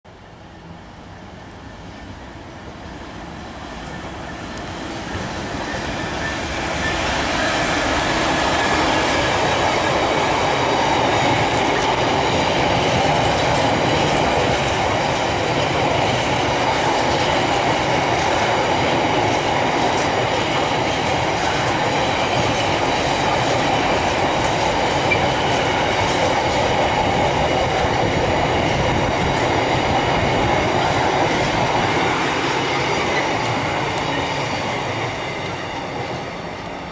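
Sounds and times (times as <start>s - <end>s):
freight train passing: 0.1s - 36.9s.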